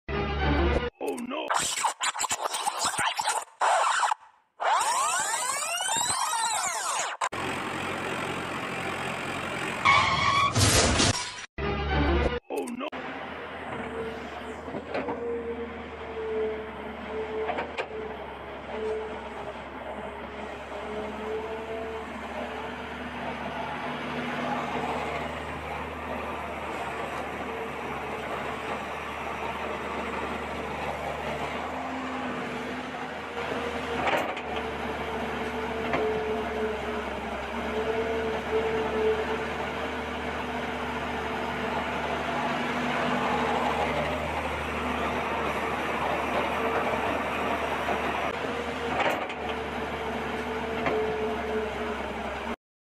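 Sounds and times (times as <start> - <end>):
sweeping rising and falling tone: 1.5 - 7.3
toy excavator motor drone: 1.6 - 7.8
tractor engine idling: 7.4 - 10.0, 13.0 - 48.6.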